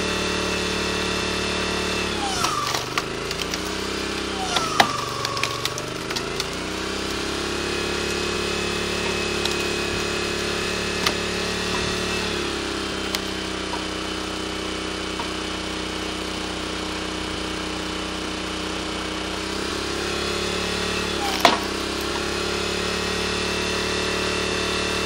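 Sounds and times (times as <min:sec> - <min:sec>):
petrol engine running: 0:00.0 - 0:25.0
log cracking: 0:02.2 - 0:15.6, 0:21.1 - 0:22.3.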